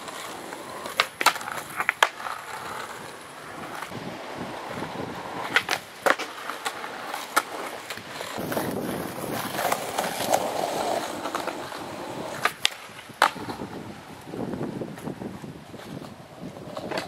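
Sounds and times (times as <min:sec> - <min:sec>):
skateboard wheels rolling: 0:00.0 - 0:17.0
skateboard clacking on ledge: 0:00.5 - 0:02.5, 0:11.0 - 0:13.8.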